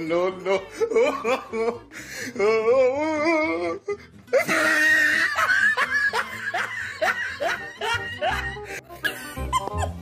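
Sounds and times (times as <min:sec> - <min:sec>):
person laughing: 0:00.6 - 0:02.6, 0:04.3 - 0:10.0.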